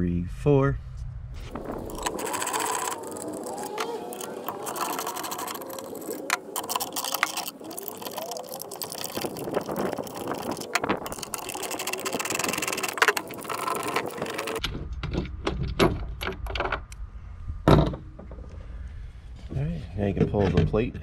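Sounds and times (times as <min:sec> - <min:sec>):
low rumble: 0:00.2 - 0:02.9.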